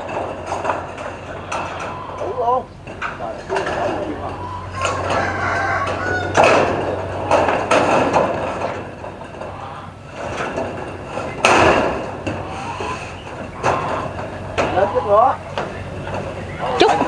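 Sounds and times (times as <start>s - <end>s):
metal roofing sheets clanging: 0.0s - 17.0s
loud metal crash: 4.8s - 9.4s, 10.1s - 12.6s.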